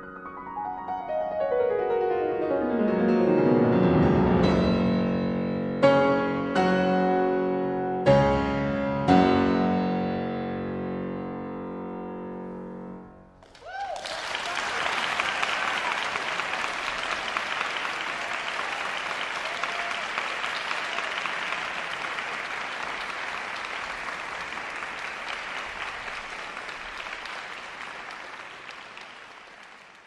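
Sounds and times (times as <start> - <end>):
audience applauding: 13.4 - 30.0.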